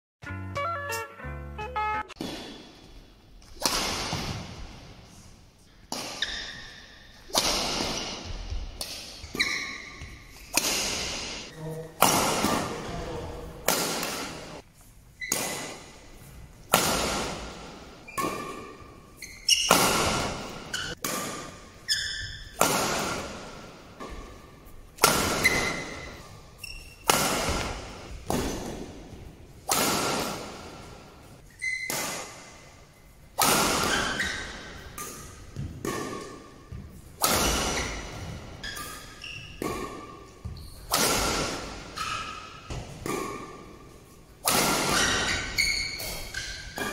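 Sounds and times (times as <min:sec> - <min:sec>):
badminton racket hitting shuttlecock: 0:02.2 - 0:05.1, 0:05.8 - 0:12.9, 0:13.6 - 0:46.9
shoes squeaking on court: 0:09.2 - 0:10.5, 0:18.0 - 0:21.0, 0:25.4 - 0:27.1, 0:31.5 - 0:31.9, 0:36.8 - 0:41.0, 0:45.0 - 0:46.9.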